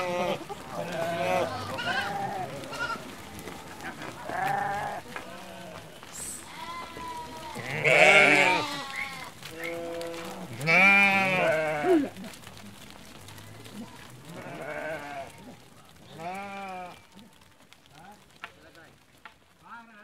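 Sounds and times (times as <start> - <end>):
sheep bleating: 0.0 - 12.4, 13.7 - 17.3.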